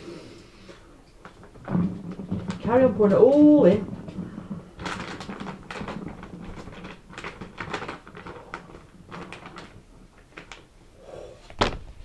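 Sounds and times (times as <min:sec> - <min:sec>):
plastic bag crinkling: 0:01.2 - 0:10.8
powder pouring: 0:01.2 - 0:10.8.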